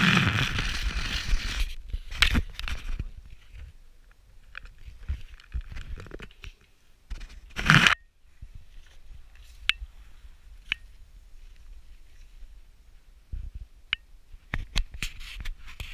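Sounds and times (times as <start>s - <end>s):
rustling scrape: 0.0s - 3.8s, 14.9s - 15.9s.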